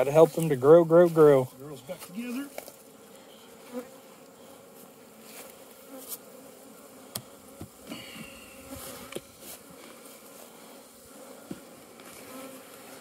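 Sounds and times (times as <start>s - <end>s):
honeybees buzzing: 0.0s - 13.0s
bee whining close by: 1.8s - 13.0s
wooden knocks of hive frames: 7.1s - 8.3s, 11.4s - 11.7s.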